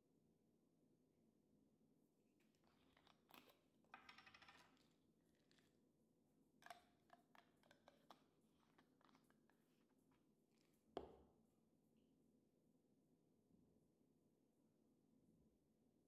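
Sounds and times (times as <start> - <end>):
plastic cap clicking open: 6.6 - 9.3.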